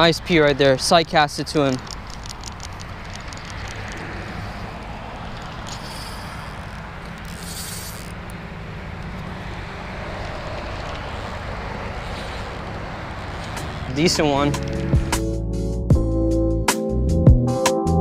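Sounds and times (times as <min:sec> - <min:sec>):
road traffic noise: 0:00.0 - 0:15.9
short high hisses: 0:05.7 - 0:06.7, 0:07.3 - 0:08.1, 0:12.0 - 0:12.6.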